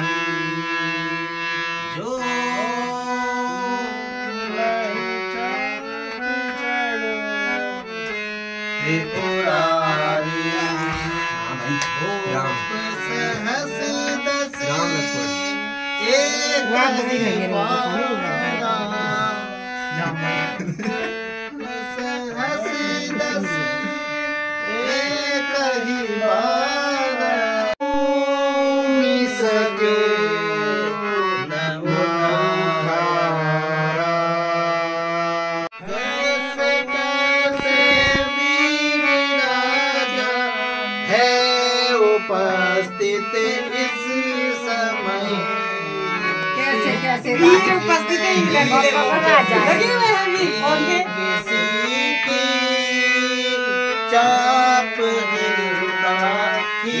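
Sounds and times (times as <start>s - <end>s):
person singing: 0.0s - 34.7s, 35.7s - 57.0s
harmonium playing chords: 0.0s - 57.0s.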